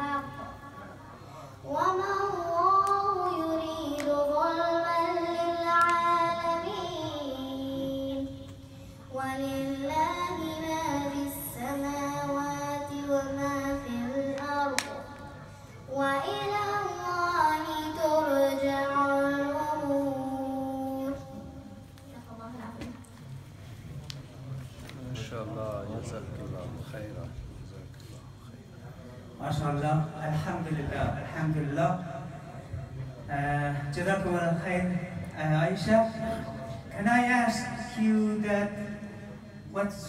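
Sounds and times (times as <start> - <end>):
girl chanting melodically: 1.6 - 22.9.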